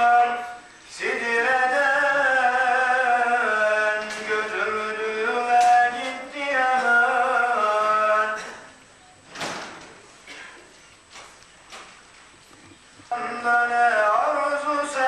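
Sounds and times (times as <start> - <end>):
man chanting unaccompanied: 0.0 - 8.7, 13.1 - 15.0.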